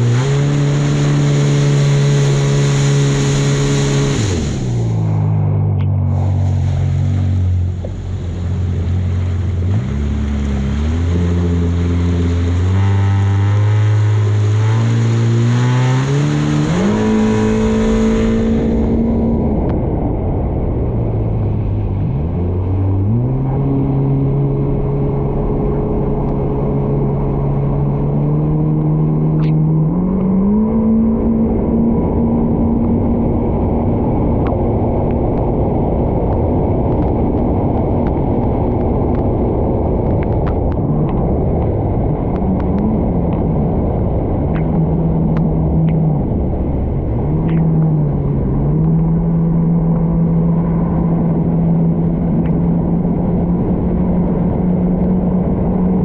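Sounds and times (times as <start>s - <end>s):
water rushing: 0.0s - 19.6s
personal watercraft engine revving: 0.0s - 19.7s, 20.9s - 56.0s
wind: 0.0s - 56.0s.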